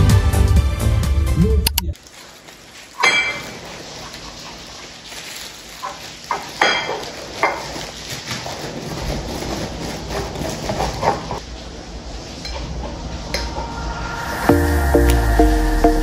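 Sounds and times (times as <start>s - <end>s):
plastic bag crinkling: 1.9s - 11.0s
knife sawing through bread: 8.2s - 11.3s.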